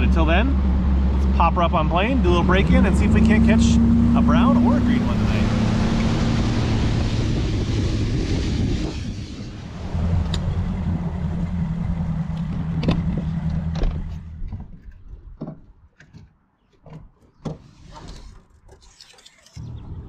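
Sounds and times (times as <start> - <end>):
outboard motor humming: 0.0 - 9.0, 9.6 - 14.5.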